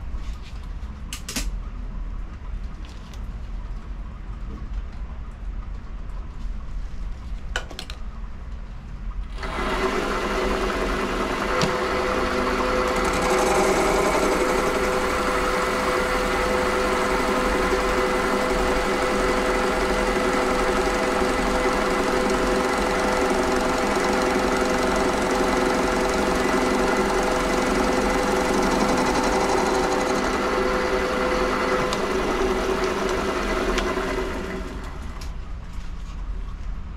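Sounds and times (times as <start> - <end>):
lathe humming and whining: 9.3 - 35.3.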